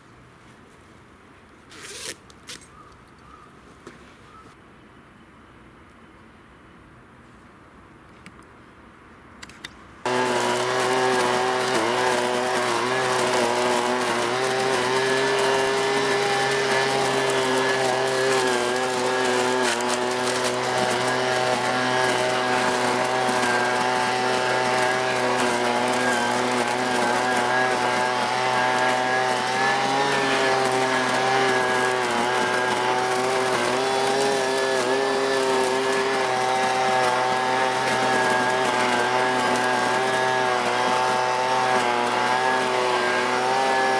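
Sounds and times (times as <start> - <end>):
leaf vacuum engine running: 10.0 - 43.9.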